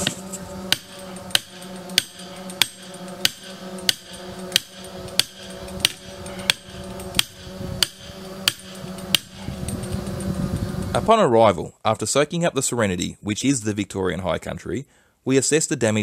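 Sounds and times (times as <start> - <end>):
hammer striking steel picket: 0.0 - 9.5.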